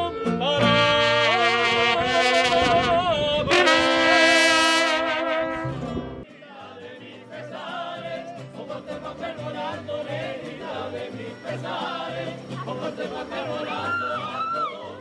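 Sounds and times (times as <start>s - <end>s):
person singing: 0.0s - 4.0s
trumpets with vibrato: 0.0s - 6.2s
strummed guitars: 0.0s - 15.0s.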